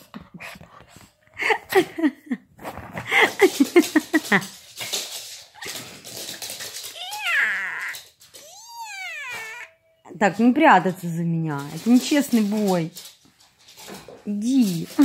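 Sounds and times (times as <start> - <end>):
dog and cat play-fighting cries: 5.6 - 10.0
cat meowing: 7.0 - 9.9.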